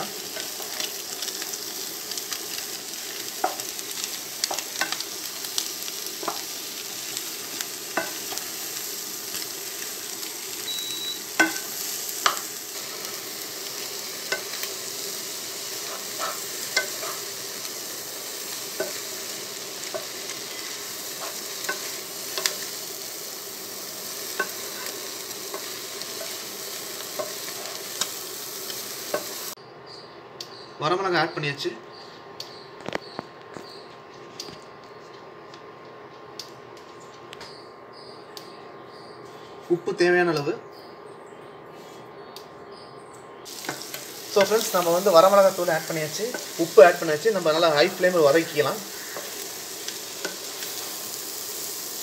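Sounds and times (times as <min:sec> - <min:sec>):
vegetables sizzling in oil: 0:00.0 - 0:29.6, 0:43.5 - 0:52.0.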